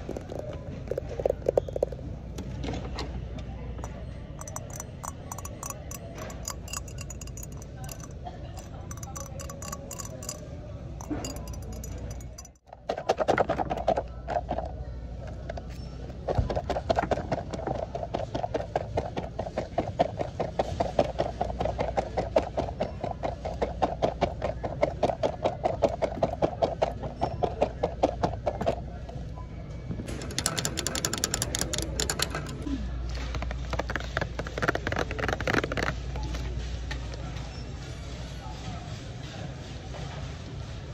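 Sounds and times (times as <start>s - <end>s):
fingernails scratching plastic: 33.3s - 36.0s.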